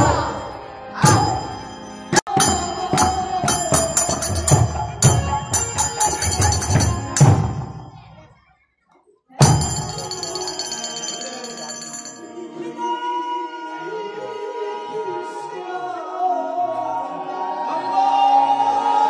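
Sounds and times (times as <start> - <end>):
drum beats: 1.0 - 8.3, 9.4 - 12.2
hand cymbals clashing: 1.1 - 8.0, 9.4 - 12.3
ringing cymbal tone: 9.4 - 12.6.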